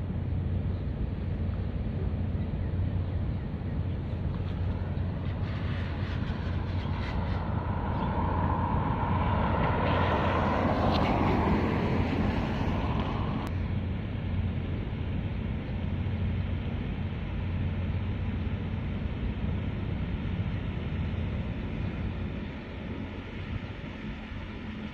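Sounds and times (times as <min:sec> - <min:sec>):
ship engines droning: 0:00.0 - 0:24.9
wind on microphone: 0:02.8 - 0:13.5
rushing noise: 0:04.2 - 0:13.5.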